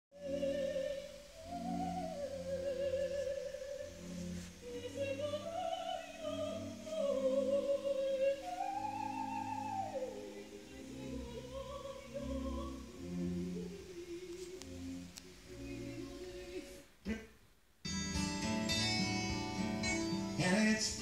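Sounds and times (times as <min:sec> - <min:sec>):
low steady accompaniment: 0:00.2 - 0:16.9
high operatic singing voice: 0:00.2 - 0:17.3.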